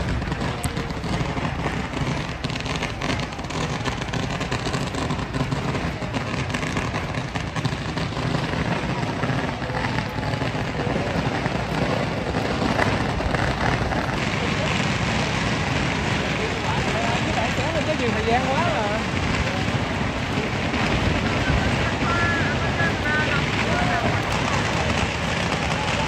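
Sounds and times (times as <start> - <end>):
many voices talking: 0.0 - 26.0
steady low rumble: 0.0 - 26.0.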